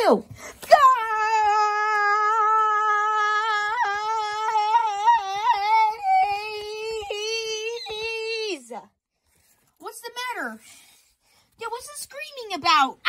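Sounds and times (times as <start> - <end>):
high-pitched vocal scream: 0.7 - 8.6.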